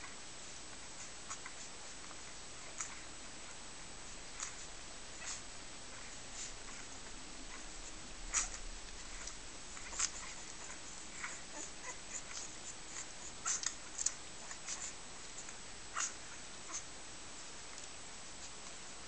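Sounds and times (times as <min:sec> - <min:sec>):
faint steady hiss: 0:00.0 - 0:19.0
puppies squeaking: 0:04.4 - 0:16.9.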